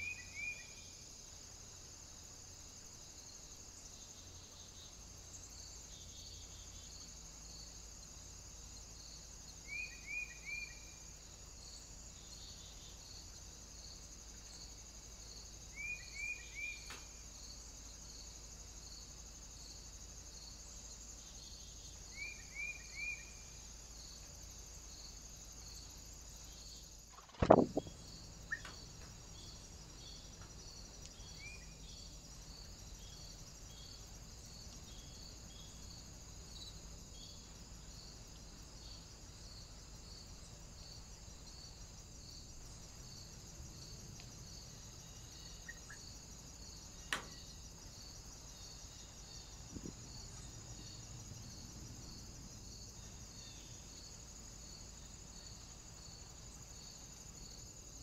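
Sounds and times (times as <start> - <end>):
faint woodland ambience: 0.0 - 58.0
insects chirping: 0.0 - 58.0
small click: 16.8 - 17.1, 47.1 - 47.4
loud thump: 27.2 - 27.9
bird chirps: 27.2 - 28.8, 45.5 - 46.0.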